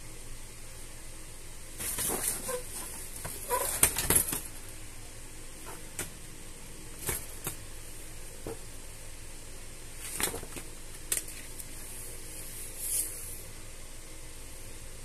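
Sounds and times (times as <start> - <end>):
cats scuffling on umbrella: 1.8 - 4.4.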